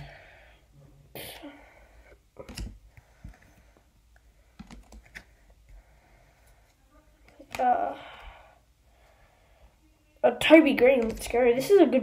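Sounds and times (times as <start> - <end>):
trading cards clicking and tapping: 4.6 - 5.3.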